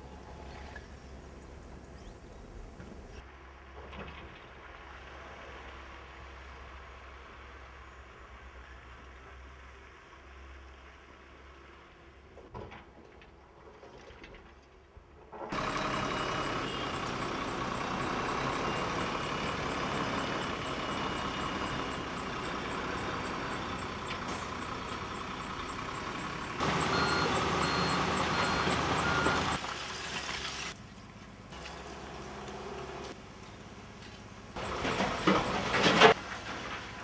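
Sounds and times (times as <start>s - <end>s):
diesel machinery running under load: 0.0s - 3.2s, 15.4s - 37.0s
reversing alarm beeping: 15.8s - 29.6s.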